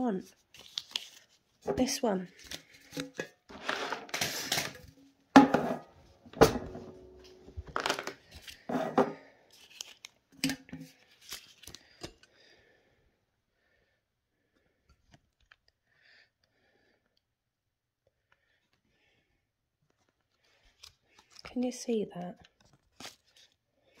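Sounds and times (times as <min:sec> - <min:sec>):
banknotes rustling: 0:00.3 - 0:04.8, 0:10.9 - 0:12.0
tin knocking and clattering: 0:05.4 - 0:05.8.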